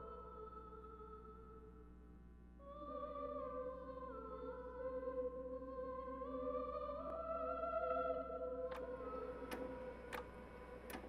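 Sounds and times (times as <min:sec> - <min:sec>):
wordless choir singing: 0:02.9 - 0:11.0.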